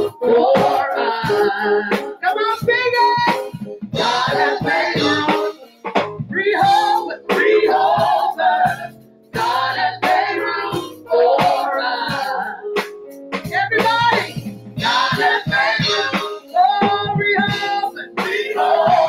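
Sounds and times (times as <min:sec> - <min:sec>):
women singing into microphones: 0:00.0 - 0:02.1, 0:06.6 - 0:12.7, 0:13.6 - 0:19.0
keyboard accompaniment: 0:00.0 - 0:19.0.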